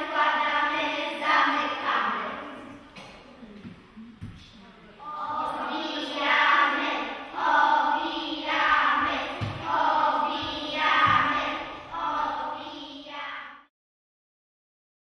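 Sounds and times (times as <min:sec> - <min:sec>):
girls singing in unison: 0:00.0 - 0:03.1, 0:05.0 - 0:13.7.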